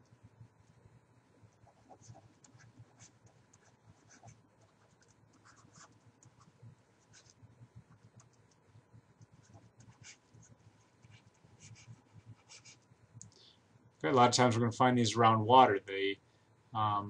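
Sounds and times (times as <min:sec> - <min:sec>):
stylus scratching on tablet: 0:01.5 - 0:12.9.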